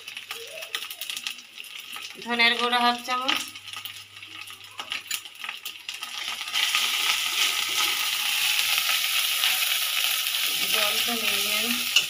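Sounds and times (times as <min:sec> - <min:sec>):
loud sizzling: 0:05.6 - 0:12.0.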